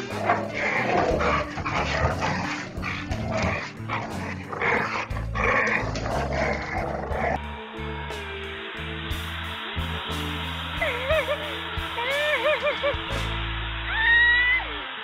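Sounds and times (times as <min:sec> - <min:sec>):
dogs growling and barking: 0:00.0 - 0:07.4.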